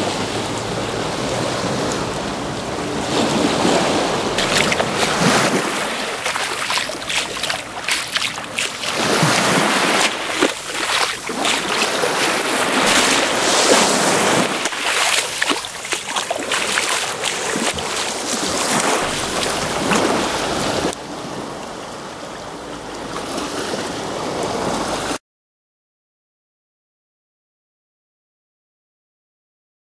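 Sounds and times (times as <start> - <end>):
water washing: 0.2 - 21.0
foot splashing in water: 4.4 - 20.9.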